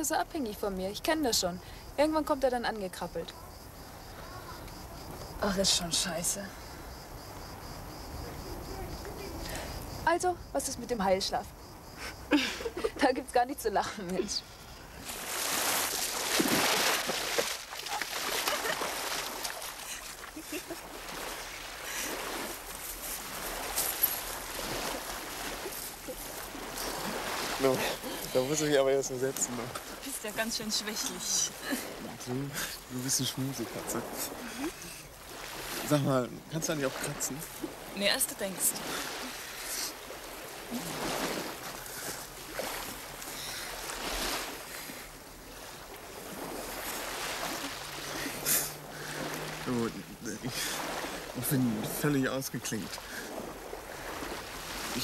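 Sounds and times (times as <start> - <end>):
sea water lapping at shoreline: 0.0 - 55.0
waves washing onto pebbles: 15.0 - 55.0.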